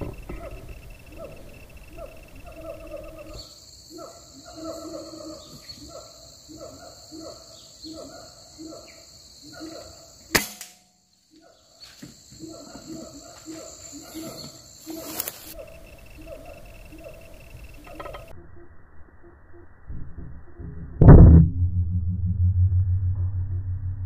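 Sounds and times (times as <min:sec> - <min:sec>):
high insect buzz: 0:00.0 - 0:06.7, 0:11.8 - 0:18.4
air rifle shot: 0:10.4 - 0:10.8.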